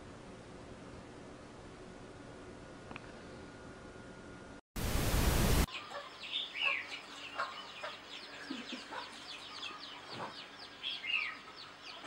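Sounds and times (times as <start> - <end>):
birds chirping: 5.7 - 12.0
chicken clucks: 5.9 - 10.5.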